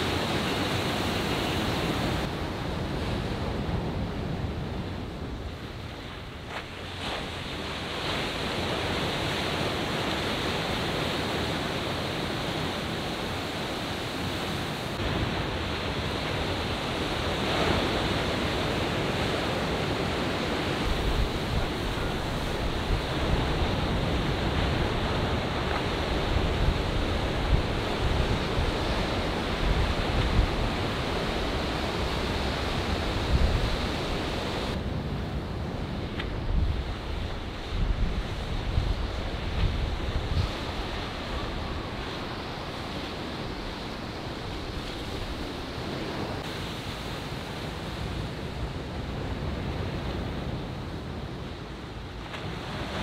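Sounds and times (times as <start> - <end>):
ocean surf breaking: 0.0 - 53.0
wind buffeting microphone: 14.0 - 51.6.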